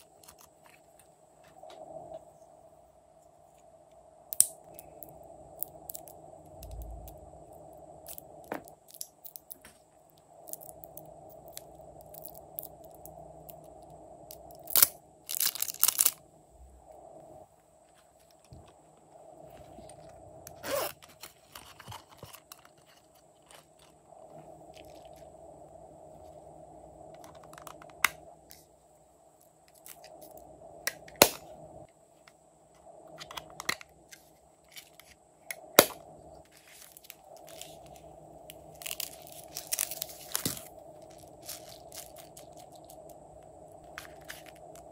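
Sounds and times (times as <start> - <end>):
faint steady hum: 0.0 - 44.9
crunchy rustle: 14.4 - 16.2, 17.8 - 25.4, 36.4 - 44.9.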